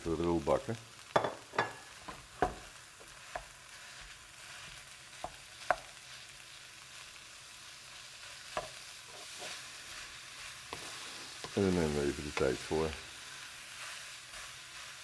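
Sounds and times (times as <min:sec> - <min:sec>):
meat sizzling in a pan: 0:00.0 - 0:15.0
spatula stirring mince: 0:07.7 - 0:15.0.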